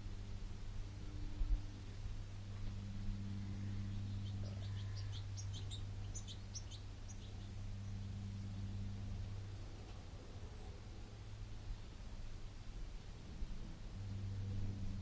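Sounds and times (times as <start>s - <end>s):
steady low hum: 0.0s - 15.0s
small bird chirping: 3.4s - 8.0s.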